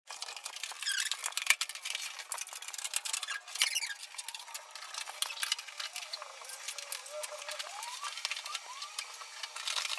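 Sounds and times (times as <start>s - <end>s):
brief squeaks: 3.2s - 4.0s.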